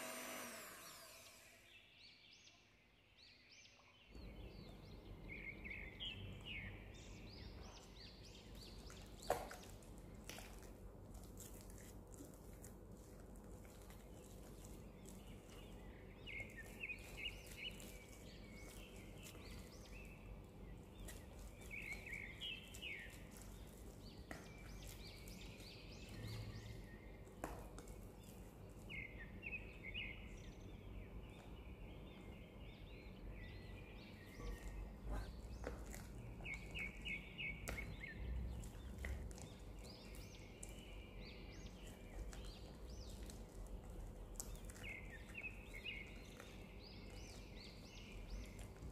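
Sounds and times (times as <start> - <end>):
bird chirping: 14.0 - 27.5, 28.2 - 48.9.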